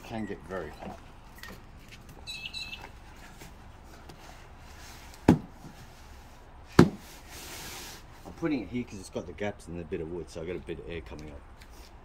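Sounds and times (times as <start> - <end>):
thump on wooden deck: 5.3 - 5.5, 6.8 - 7.0.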